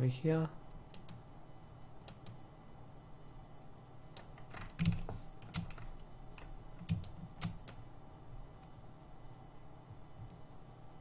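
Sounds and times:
keyboard and mouse clicks: 0:00.9 - 0:01.2, 0:02.0 - 0:02.4, 0:04.2 - 0:07.8.

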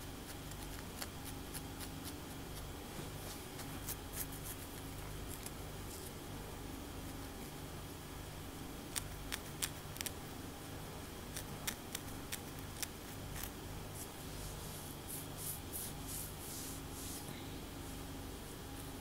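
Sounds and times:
nails scratching scalp: 0:00.3 - 0:06.1, 0:08.9 - 0:10.2, 0:11.3 - 0:17.3.

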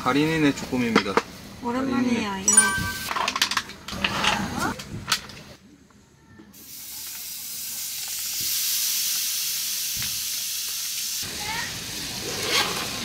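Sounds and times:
octopus sizzling in a pan: 0:06.6 - 0:13.0.

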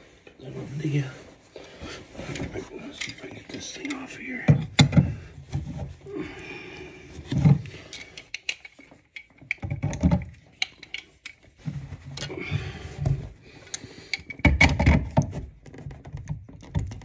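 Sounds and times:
metal hand tools clicking and scraping: 0:07.7 - 0:09.6, 0:10.4 - 0:11.5.

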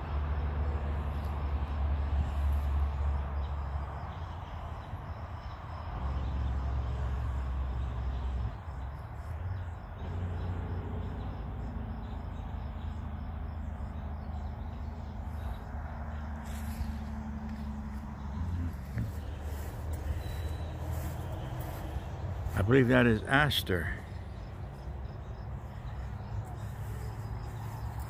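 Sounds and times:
steady low rumble: 0:12.0 - 0:28.0.

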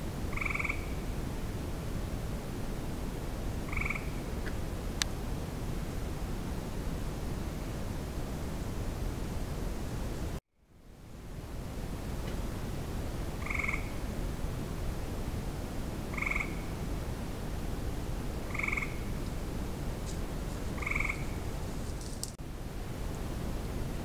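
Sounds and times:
steady hiss: 0:00.0 - 0:24.0
frog trilling: 0:00.3 - 0:01.1, 0:03.7 - 0:04.6, 0:13.4 - 0:14.0, 0:16.1 - 0:16.8, 0:18.5 - 0:19.1, 0:20.8 - 0:21.5.

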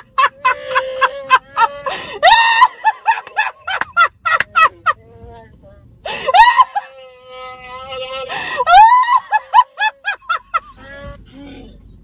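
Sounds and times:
woman laughing in gasping bursts: 0:00.0 - 0:04.4, 0:06.1 - 0:06.8.

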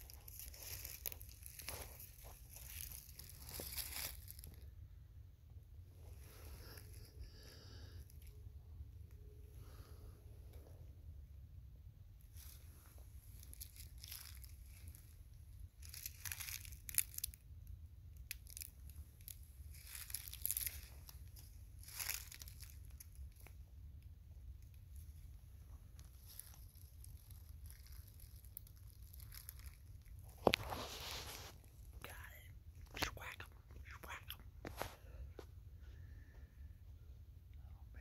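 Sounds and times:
footsteps on dry leaves: 0:00.0 - 0:04.6, 0:12.3 - 0:15.1, 0:15.8 - 0:17.3, 0:18.4 - 0:23.5, 0:26.0 - 0:31.7.

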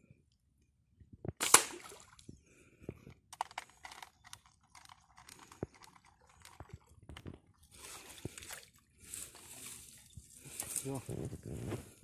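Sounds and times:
reel clicking and rattling: 0:03.3 - 0:07.3.

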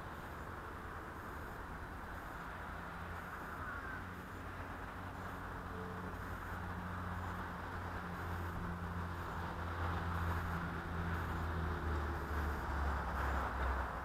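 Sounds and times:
faint engine-like drone: 0:00.0 - 0:14.0
hiss: 0:08.1 - 0:13.8.

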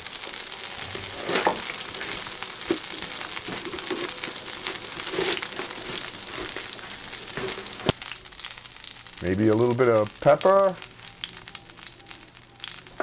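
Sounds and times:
frying sizzle: 0:00.0 - 0:13.0
paper shell crinkling and cracking: 0:00.2 - 0:08.1.

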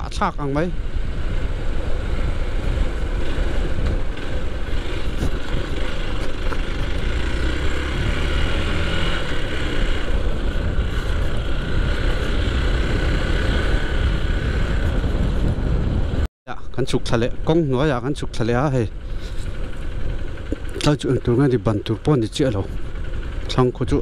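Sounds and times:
wind rushing over microphone: 0:00.0 - 0:16.3
motorcycle engine running: 0:00.5 - 0:16.3, 0:17.3 - 0:24.0.

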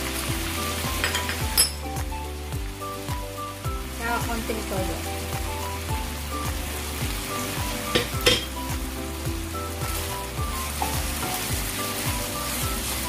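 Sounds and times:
background music with steady beat: 0:00.0 - 0:13.0
meat sizzling in frying pan: 0:00.0 - 0:13.0.

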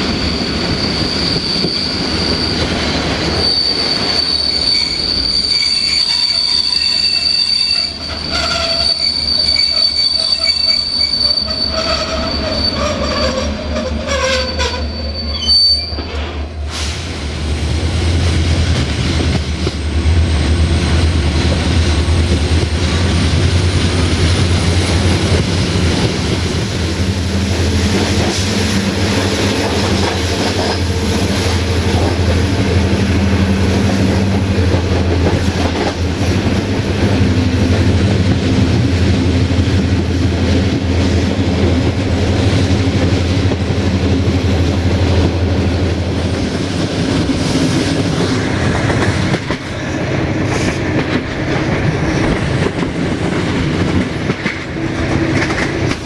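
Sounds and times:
train wheels squealing on rails: 0:00.0 - 0:17.4, 0:18.8 - 0:38.5, 0:42.4 - 0:56.0
diesel locomotive engine drone: 0:00.0 - 0:56.0
clattering train wheels: 0:15.8 - 0:56.0.

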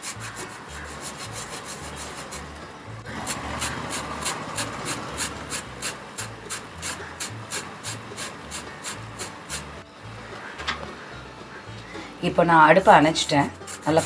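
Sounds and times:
lemon peel rasping on grater: 0:00.0 - 0:02.5, 0:03.1 - 0:09.8, 0:13.4 - 0:14.0.

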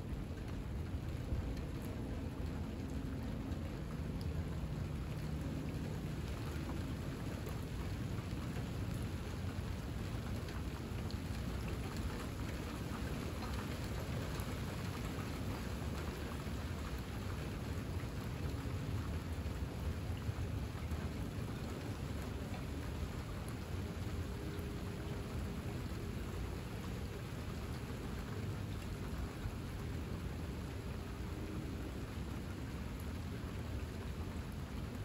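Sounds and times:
rain on a tile roof: 0:00.0 - 0:35.0.

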